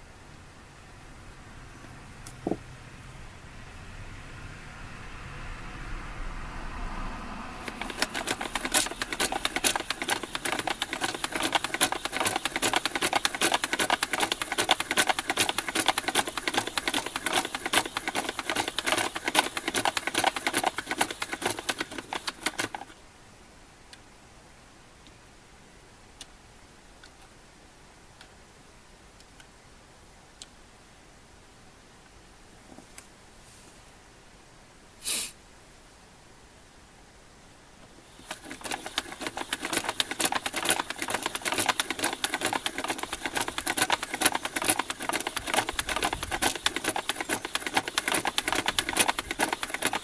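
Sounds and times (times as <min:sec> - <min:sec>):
toy mechanism rattling clicks: 0:07.7 - 0:22.9, 0:38.2 - 0:50.0.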